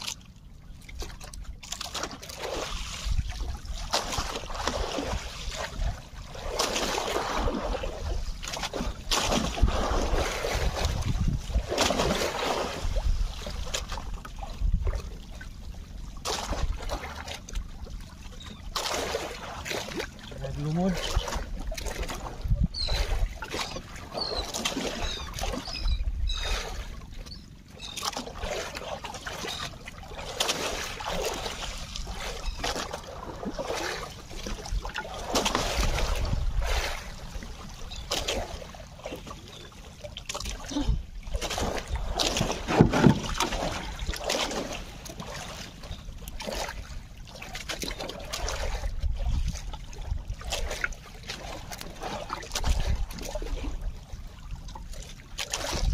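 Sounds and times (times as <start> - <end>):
water splashing against boat hull: 0.0 - 55.9.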